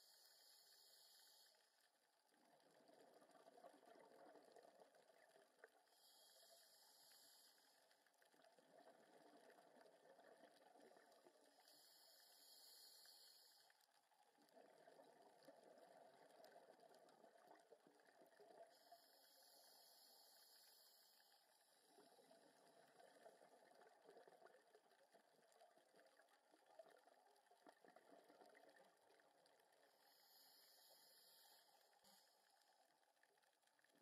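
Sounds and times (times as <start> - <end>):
underwater bubbling: 0.0 - 34.0
scuba regulator hiss: 0.1 - 1.6, 6.1 - 7.8, 11.7 - 13.7, 18.9 - 21.3, 30.1 - 32.3.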